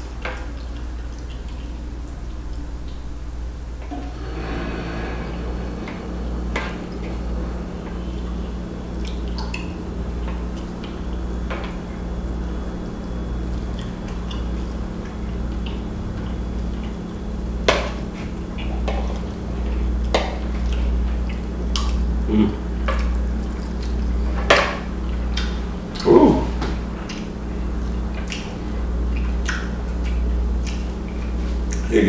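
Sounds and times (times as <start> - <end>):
steady low hum: 0.0 - 32.0
wet chewing: 26.8 - 31.9.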